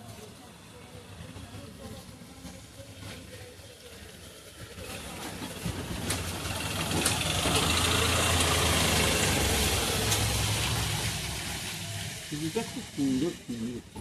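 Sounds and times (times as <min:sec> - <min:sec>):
vehicle engine running: 0:04.8 - 0:13.8.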